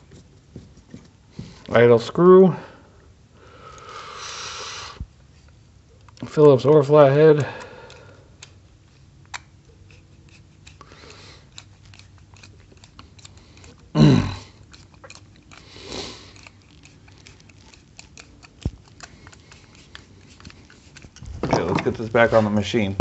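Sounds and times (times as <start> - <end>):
screwdriver clicks and scrapes: 9.3 - 13.8.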